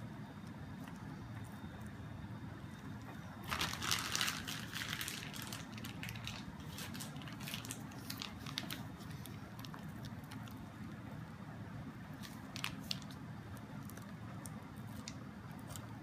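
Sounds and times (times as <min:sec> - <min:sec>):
plastic piping bag crinkling: 0:03.0 - 0:11.1, 0:12.1 - 0:16.0.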